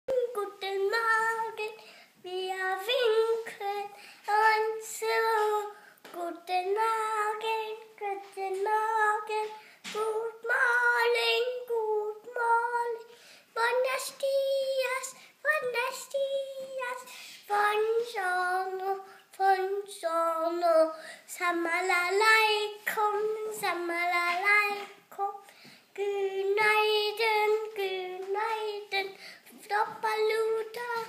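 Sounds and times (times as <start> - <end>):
boy singing in high voice: 0.1 - 31.0.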